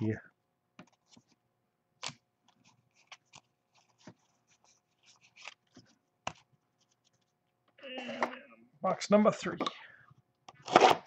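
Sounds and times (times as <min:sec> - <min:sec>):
cards rustling and clicking: 0:02.0 - 0:07.4.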